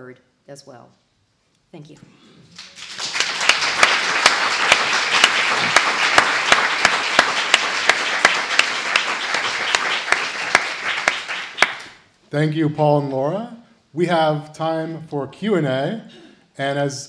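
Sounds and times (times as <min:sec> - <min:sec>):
audience applauding: 0:02.5 - 0:12.0
nearby hands clapping sharply: 0:02.6 - 0:12.0.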